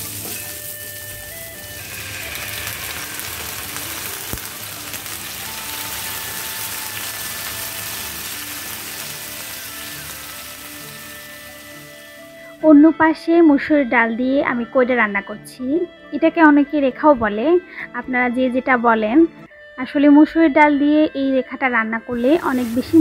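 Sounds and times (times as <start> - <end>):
lentils sizzling in oil: 0.0 - 12.6, 22.1 - 23.0.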